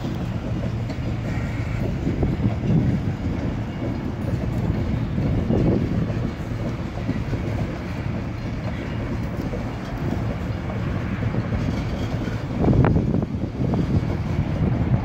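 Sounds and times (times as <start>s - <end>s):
steel wheels rumbling on rail: 0.0s - 15.0s
train car clank: 0.0s - 15.0s.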